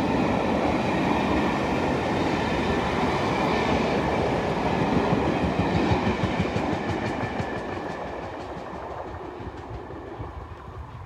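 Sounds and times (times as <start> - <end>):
train rumble: 0.0 - 11.0
train wheels clicking over rail joints: 3.7 - 10.9.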